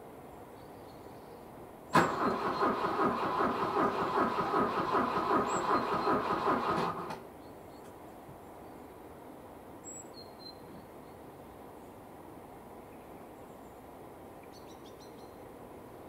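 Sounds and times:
starter motor cranking engine: 2.0 - 7.2.

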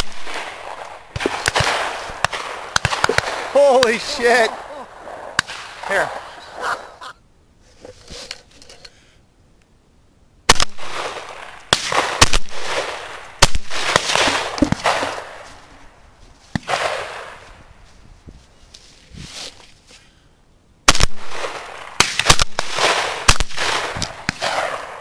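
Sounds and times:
shotgun shots echoing: 0.0 - 6.4, 10.5 - 15.4, 16.5 - 17.4, 20.9 - 25.0.

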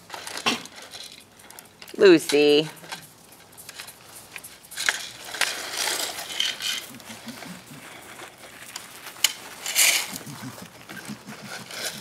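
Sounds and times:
gravel stones clattering: 3.6 - 12.0.

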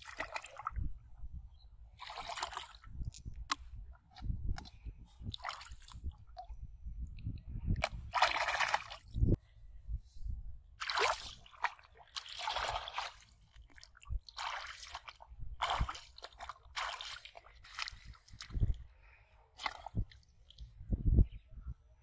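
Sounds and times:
feet sloshing through water: 0.0 - 0.8, 2.0 - 3.0, 5.3 - 6.4, 7.8 - 9.1, 10.8 - 18.9, 19.5 - 20.6.

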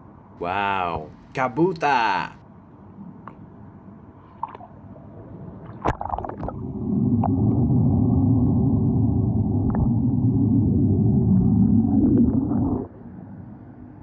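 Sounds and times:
water churning and gurgling: 4.4 - 13.5.

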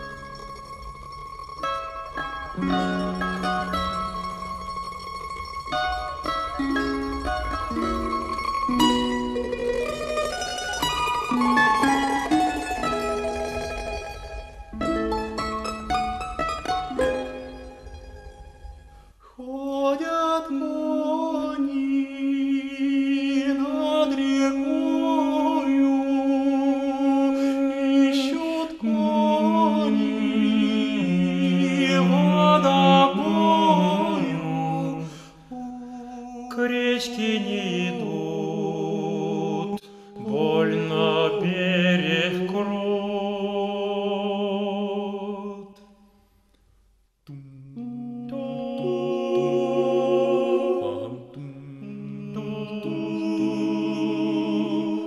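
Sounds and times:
male ensemble singing in harmony: 19.5 - 45.8, 47.9 - 55.0.

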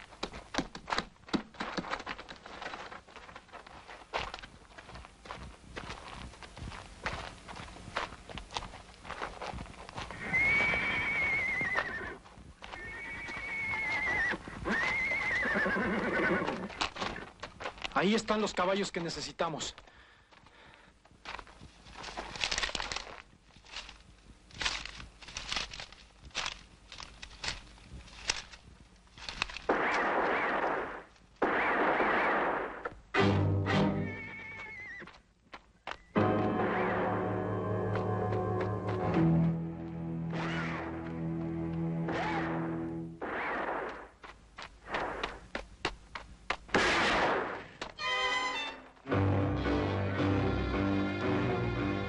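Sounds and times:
hoof clops: 0.0 - 18.2, 34.2 - 36.2
horses whinnying: 10.1 - 17.3, 34.0 - 35.2.

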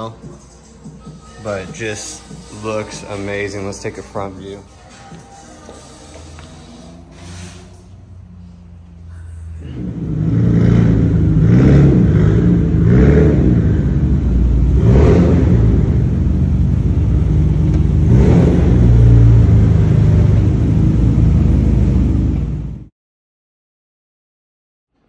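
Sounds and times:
car engine revving: 6.2 - 22.9.

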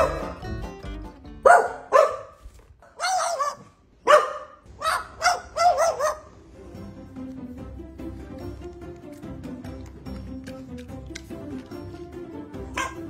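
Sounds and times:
dog barking: 0.0 - 0.4, 1.4 - 6.4, 12.7 - 13.0.

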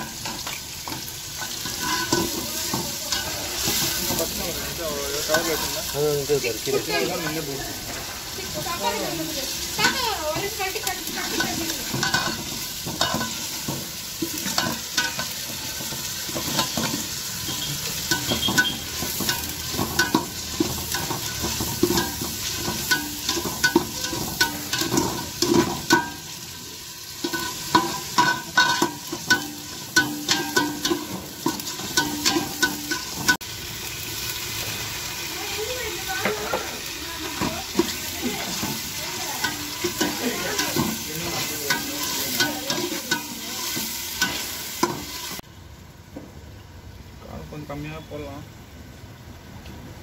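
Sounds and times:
onions sizzling in a pot: 0.0 - 50.0.

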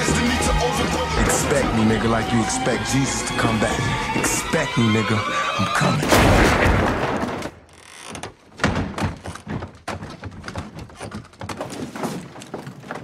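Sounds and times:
knocks and thumps: 6.0 - 13.0.

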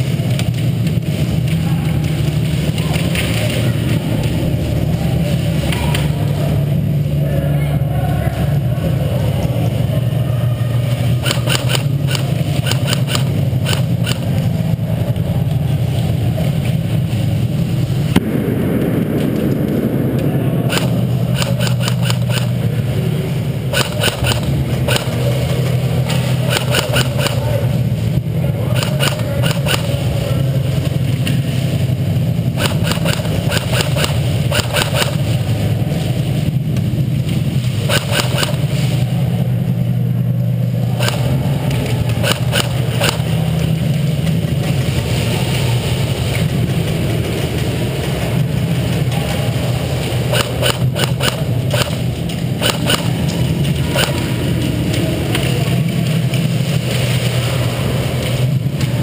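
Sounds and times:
loud low hum: 0.0 - 59.0
airsoft gunfire: 11.2 - 14.3, 18.1 - 22.8, 23.7 - 25.3, 26.4 - 27.6, 28.6 - 30.1, 32.5 - 35.4, 37.8 - 38.7, 41.0 - 41.4, 42.1 - 43.4, 50.2 - 54.2.

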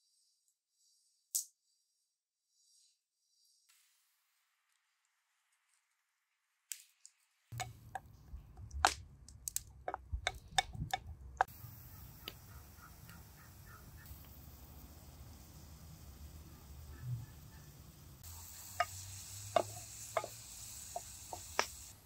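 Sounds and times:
sharp clicks and knocks: 7.5 - 11.5
bird calls: 11.5 - 14.2, 16.4 - 18.0.

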